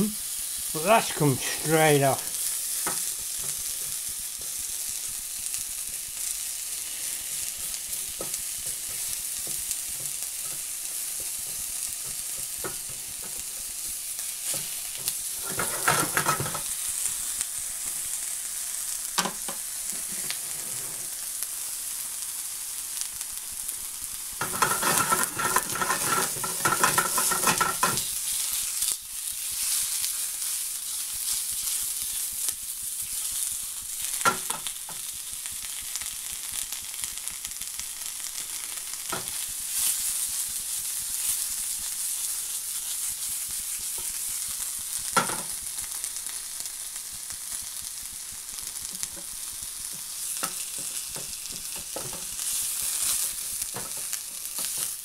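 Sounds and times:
burger and onions sizzling in a pan: 0.0s - 55.0s
spatula scraping a pan: 6.8s - 16.7s, 19.9s - 21.2s, 24.4s - 28.8s.

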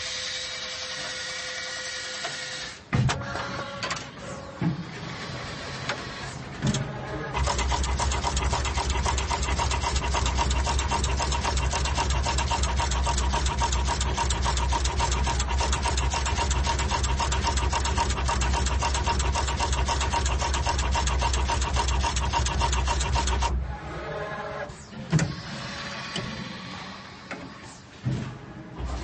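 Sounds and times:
steady machine whine: 0.0s - 29.0s
insertion head mechanical clatter: 6.6s - 23.5s.

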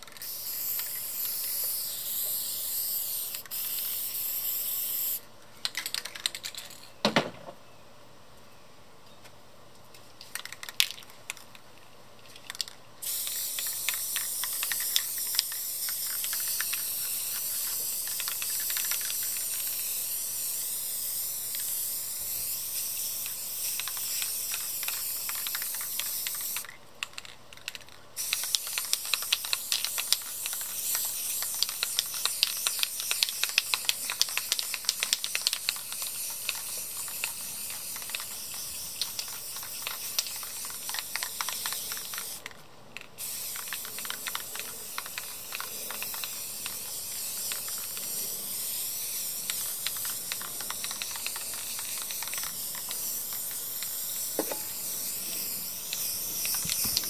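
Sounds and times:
spray paint can hissing: 0.0s - 6.7s, 10.3s - 11.5s, 12.4s - 57.0s
spray can mixing ball rattling: 0.0s - 6.8s, 10.2s - 11.6s, 12.2s - 57.0s
sharp ticks: 13.5s - 19.8s, 23.2s - 42.4s, 43.5s - 48.1s, 49.4s - 54.0s.

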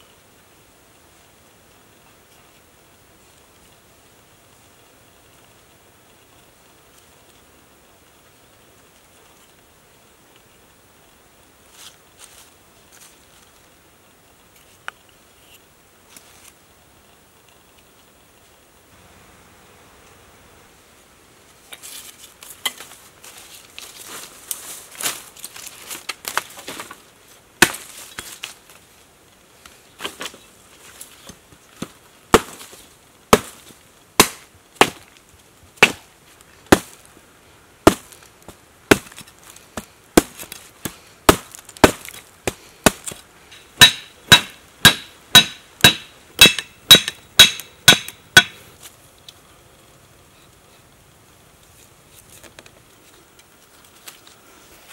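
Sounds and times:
machete chopping a stick: 27.6s - 27.9s, 32.3s - 32.7s, 33.3s - 33.6s, 34.2s - 35.1s, 35.8s - 36.1s, 36.7s - 37.0s, 37.8s - 38.2s, 38.9s - 43.2s, 43.8s - 48.6s.

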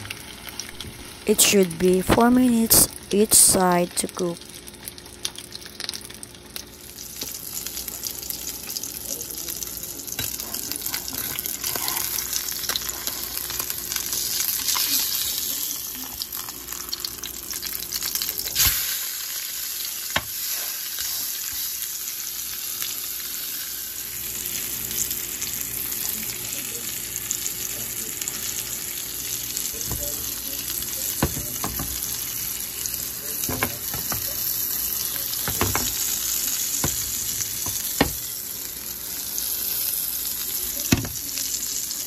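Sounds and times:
fish sizzling in butter: 0.0s - 42.0s
spatula knocking on pan: 31.2s - 32.0s, 33.5s - 34.4s, 35.4s - 36.0s, 36.8s - 38.3s.

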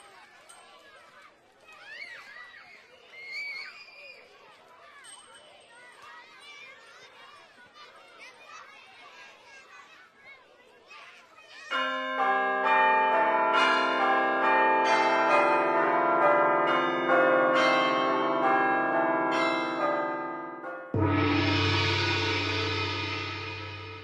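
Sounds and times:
church bells ringing: 11.7s - 24.0s
gong struck: 20.9s - 24.0s.

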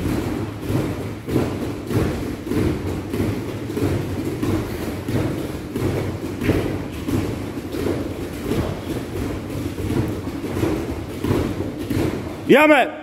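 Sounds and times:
bare feet thudding on mats: 0.0s - 12.5s.

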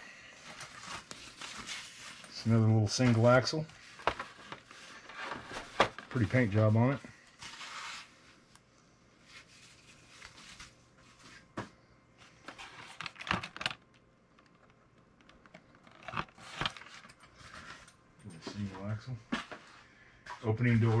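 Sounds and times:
tissue paper rustling: 0.4s - 6.8s, 9.2s - 11.4s.

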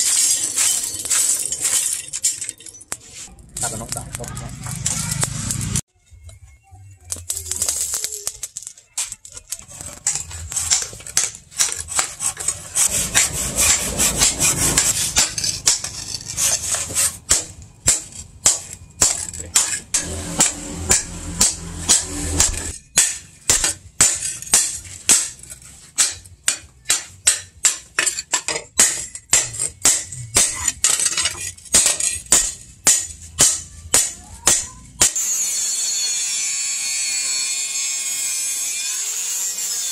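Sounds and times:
hammer striking hot metal: 10.0s - 35.8s.

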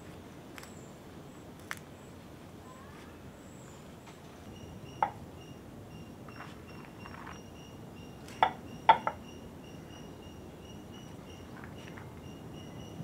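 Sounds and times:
faint high chirring: 4.5s - 13.0s.

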